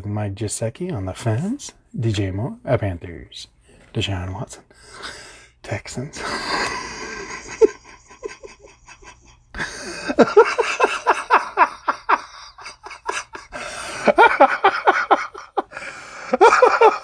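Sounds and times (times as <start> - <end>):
man laughing hard: 6.2 - 17.0.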